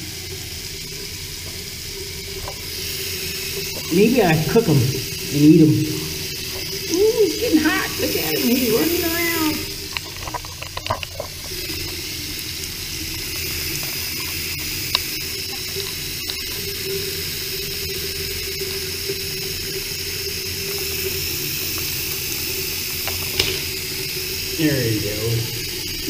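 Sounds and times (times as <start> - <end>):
water pouring into basin: 0.0 - 26.0
small knocks: 23.1 - 23.7.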